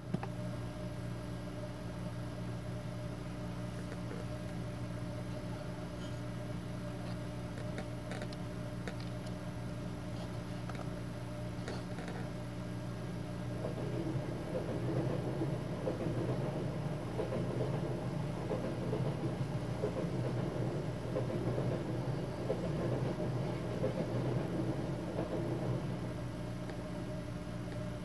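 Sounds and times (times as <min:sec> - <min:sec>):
low hum of train: 0:00.0 - 0:28.0
passing train rumbling rush: 0:12.7 - 0:28.0.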